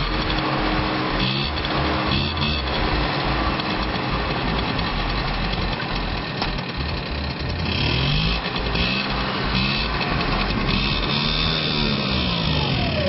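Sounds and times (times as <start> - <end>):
scooter engine running: 0.0 - 13.0.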